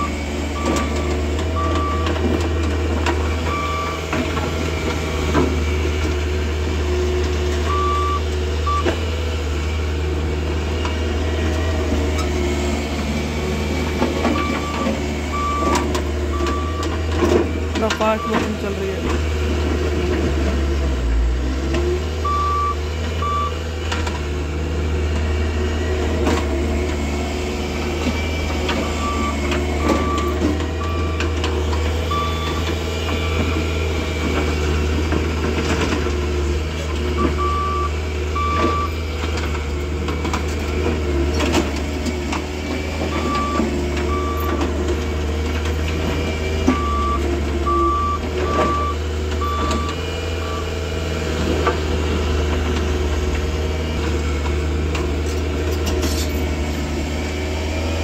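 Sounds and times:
reversing alarm beeps: 0:00.0 - 0:02.1, 0:03.5 - 0:04.0, 0:07.7 - 0:08.9, 0:14.4 - 0:16.9, 0:18.1 - 0:18.7, 0:22.2 - 0:23.6, 0:28.8 - 0:31.3, 0:32.1 - 0:33.6, 0:37.2 - 0:39.0, 0:43.1 - 0:44.5, 0:46.7 - 0:50.7
diesel engine droning: 0:00.0 - 0:58.0.

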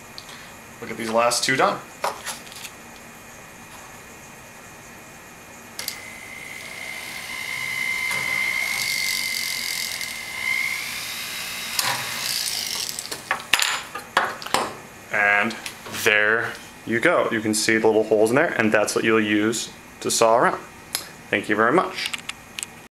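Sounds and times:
rotary tool motor whine: 0:05.8 - 0:13.2.

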